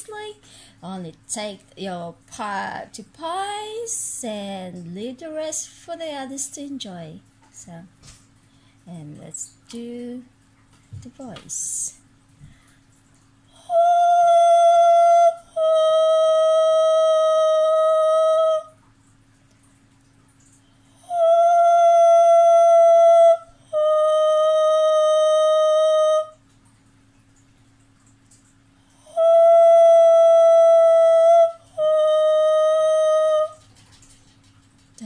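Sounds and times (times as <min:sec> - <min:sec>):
woman breathing: 0:00.4 - 0:00.8
woman vocalising high notes: 0:21.0 - 0:26.3, 0:29.0 - 0:33.6.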